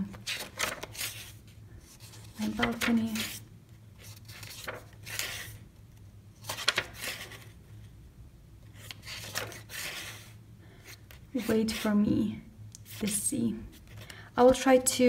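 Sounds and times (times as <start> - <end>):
paper pages rustling: 0.0 - 3.4, 4.0 - 5.6, 6.4 - 7.6, 8.8 - 11.9
low steady hum: 0.0 - 15.0.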